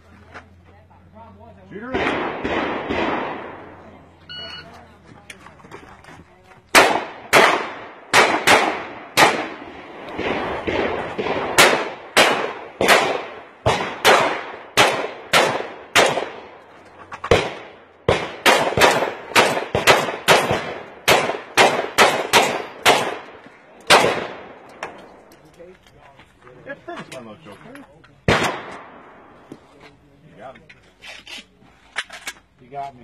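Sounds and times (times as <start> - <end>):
rapid rifle fire: 1.9 - 3.7, 6.7 - 16.5, 17.3 - 23.3, 23.9 - 24.5.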